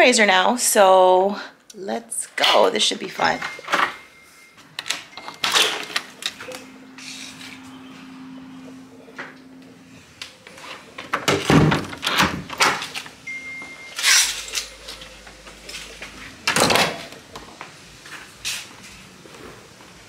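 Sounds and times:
keypad lock beep: 3.2 - 6.8, 13.2 - 14.8.

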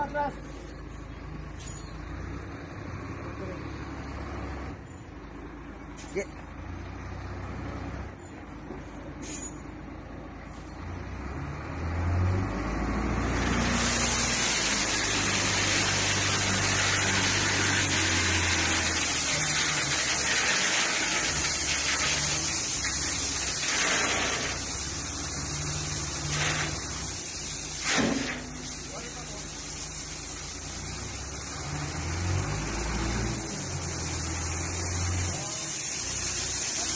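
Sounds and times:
diesel engine running: 0.0 - 36.9
gravel pouring onto ground: 13.4 - 36.9.

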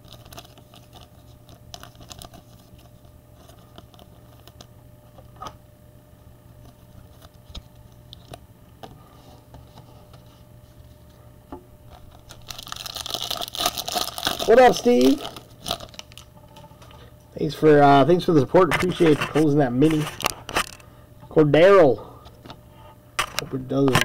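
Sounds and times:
cards being shuffled: 0.0 - 4.7, 18.6 - 20.8
foil wrapper crinkling: 0.0 - 5.4, 11.9 - 17.1, 18.6 - 20.9.

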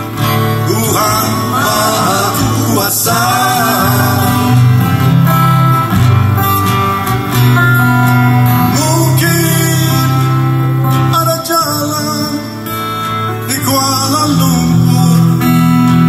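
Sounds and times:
steady bass: 0.0 - 11.4
strummed acoustic guitars: 0.0 - 16.0
man singing: 0.2 - 4.9, 8.6 - 16.0.

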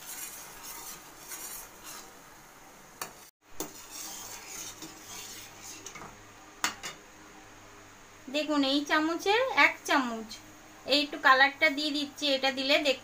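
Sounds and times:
syrup bubbling in a wok: 0.0 - 2.3, 3.1 - 6.2.

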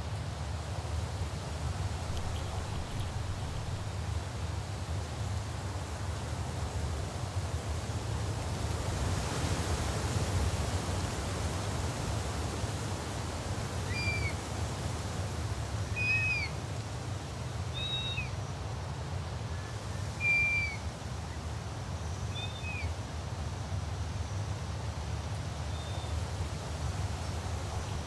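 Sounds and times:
steady low rumble: 2.0 - 4.0, 27.4 - 28.0
bird of prey whistled cries: 13.9 - 14.4, 15.9 - 16.5, 17.8 - 18.3, 20.2 - 20.8, 22.3 - 22.9.

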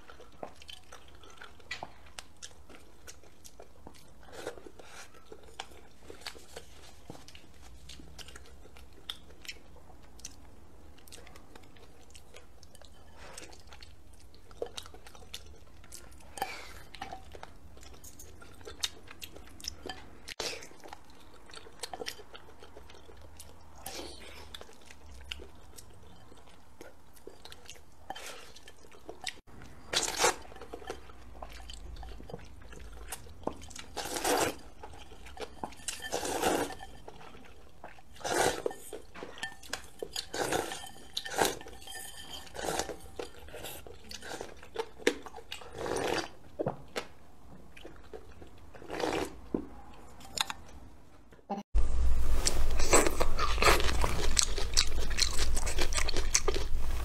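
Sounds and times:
crunching and chewing crisp greens: 0.0 - 50.8, 51.8 - 57.0
slurping noodles: 38.2 - 38.8, 48.9 - 49.4.

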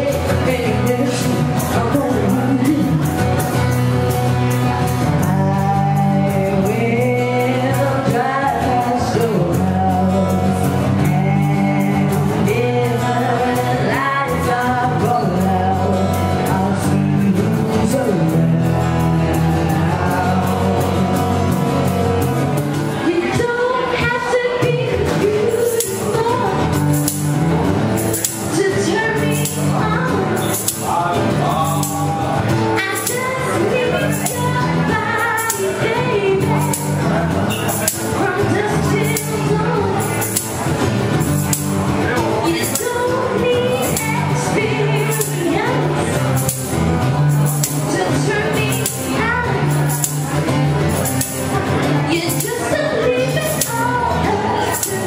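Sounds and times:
woman singing: 0.0 - 3.6, 4.5 - 22.2, 23.0 - 27.4, 28.2 - 40.6, 42.3 - 46.8, 47.5 - 50.2, 52.0 - 55.0
strummed acoustic guitar: 0.0 - 55.0
tambourine jingling: 25.4 - 32.3, 32.9 - 44.2.

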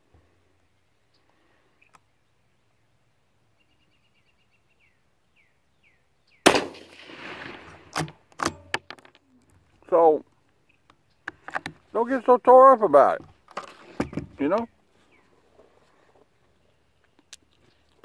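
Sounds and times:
faint bird chirping: 0.2 - 6.5, 9.2 - 12.0, 13.8 - 18.0
rifle shot: 6.4 - 8.8
rifle bolt metallic clacks: 7.9 - 9.2.

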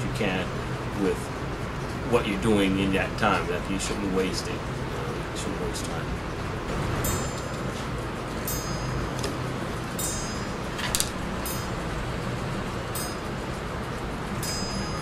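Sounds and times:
steady low hum: 0.0 - 15.0
high bell-like chimes: 7.0 - 7.8, 8.4 - 9.2, 9.9 - 13.6, 14.4 - 15.0.

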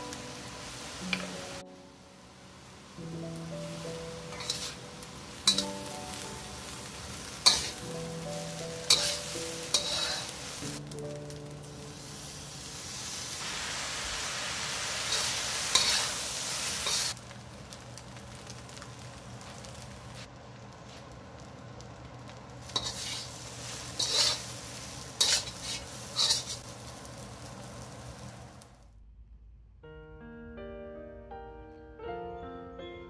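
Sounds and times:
rice sizzling in a wok: 0.0 - 28.8
metal spatula scraping wok: 4.3 - 5.9, 7.2 - 7.9, 8.6 - 10.8, 15.0 - 17.2, 22.7 - 26.6.

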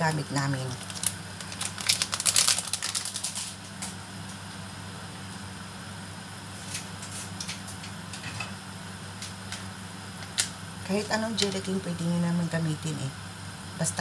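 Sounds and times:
steady low hum: 0.0 - 14.0
packet crinkling: 0.4 - 3.9.

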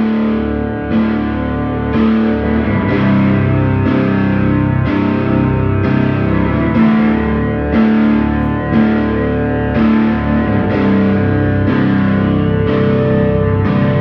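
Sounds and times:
distorted electric guitar drone: 0.0 - 14.0
keyboard through effects: 0.0 - 14.0.

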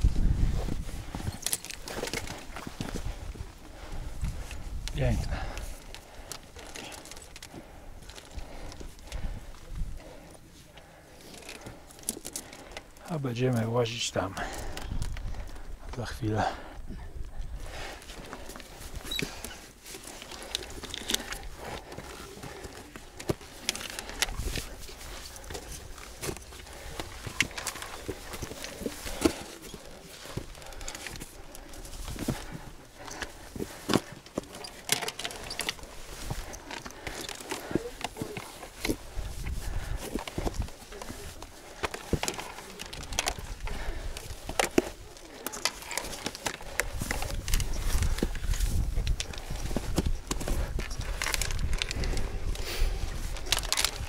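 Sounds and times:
boots scraping on rock: 18.1 - 51.5.

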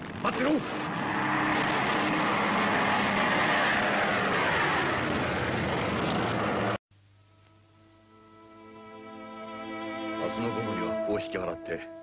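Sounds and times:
propeller aircraft engines droning: 0.0 - 6.8.

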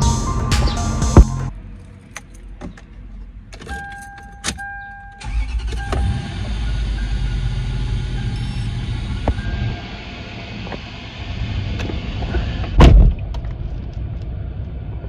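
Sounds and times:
car engine starting and idling: 0.0 - 15.0
ignition clicks: 3.5 - 7.2.

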